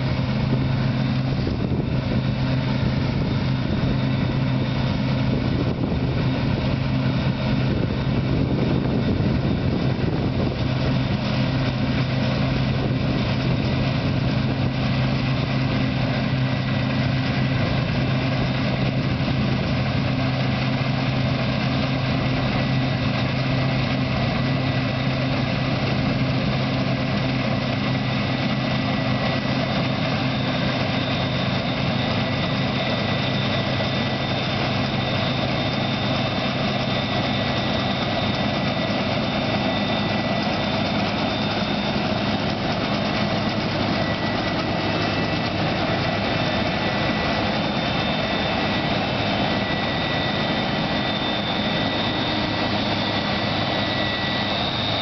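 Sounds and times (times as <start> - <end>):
combine harvester drone: 0.0 - 55.0
high machine whine: 0.0 - 55.0.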